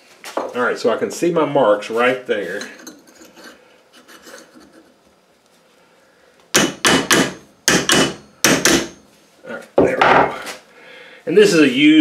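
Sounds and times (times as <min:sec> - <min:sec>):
metal-on-metal knocks: 0:06.6 - 0:09.0.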